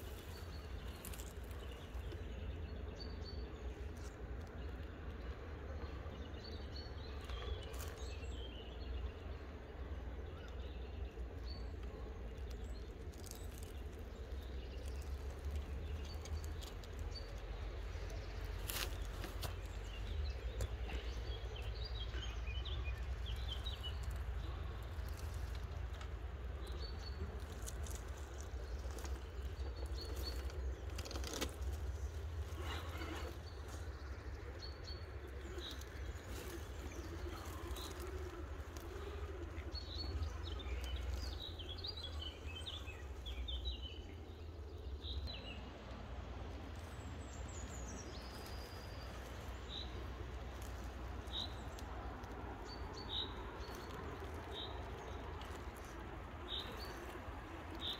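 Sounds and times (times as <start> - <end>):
songbirds chirping: 0.0 - 57.9
sharp clicks and crackles: 23.3 - 34.5.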